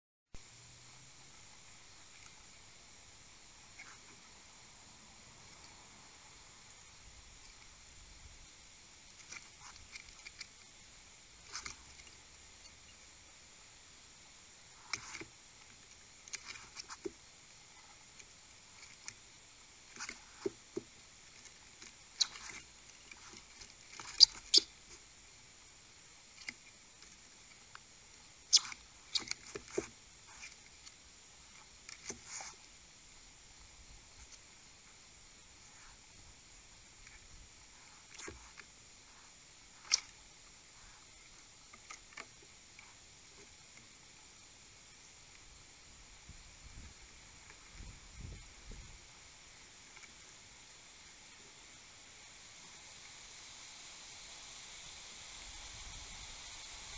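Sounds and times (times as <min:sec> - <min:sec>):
faint steady hiss: 0:00.4 - 0:56.9
skunks squabbling: 0:24.0 - 0:24.8, 0:28.5 - 0:29.4.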